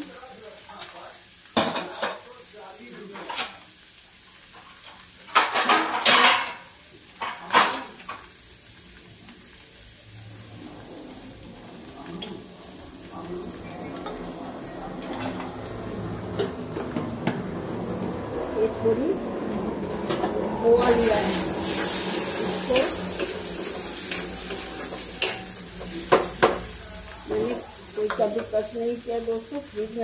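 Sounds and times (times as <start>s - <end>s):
lentils frying in ghee: 0.0s - 30.0s
metal utensils clinking: 20.0s - 28.7s.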